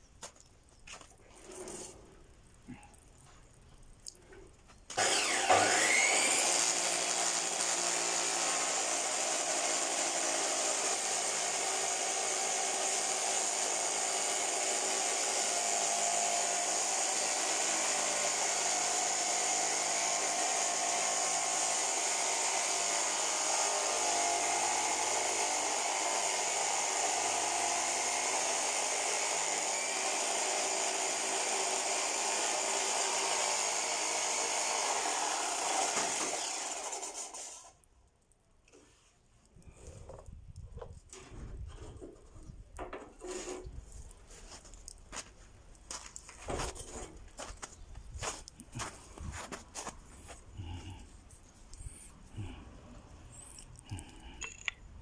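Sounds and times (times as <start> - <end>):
saw disc cutting masonry: 4.8 - 37.8, 41.2 - 45.3
saw motor whining: 4.9 - 37.8.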